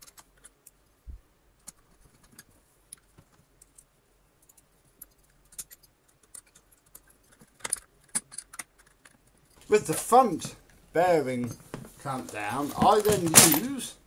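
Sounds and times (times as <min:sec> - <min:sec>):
clicks of screws and screwdriver: 0:01.6 - 0:09.6.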